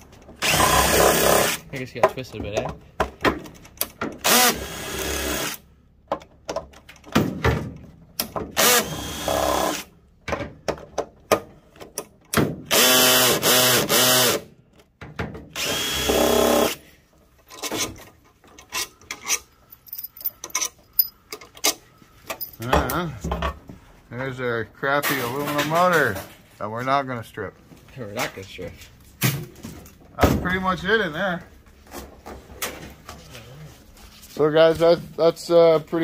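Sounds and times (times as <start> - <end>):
cordless drill bursts: 0.4 - 1.6, 4.2 - 5.6, 8.6 - 9.9, 12.7 - 14.5, 15.6 - 16.8
metal bolts clinking: 17.4 - 23.0.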